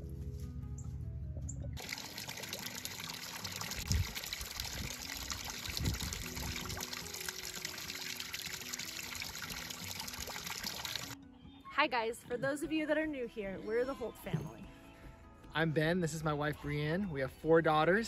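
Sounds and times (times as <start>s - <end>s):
water splashing from pipe into pool: 1.8s - 11.2s.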